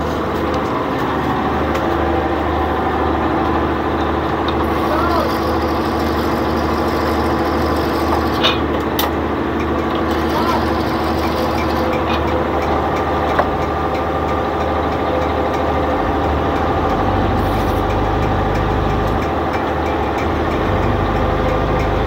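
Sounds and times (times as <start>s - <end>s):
boat diesel engine running: 0.0s - 22.0s.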